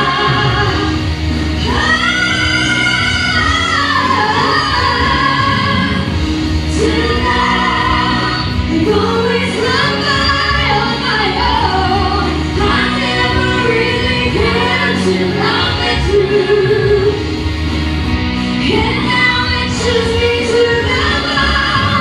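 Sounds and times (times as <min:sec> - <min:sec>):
vocal trio singing in harmony: 0:00.0 - 0:17.6, 0:18.3 - 0:22.0.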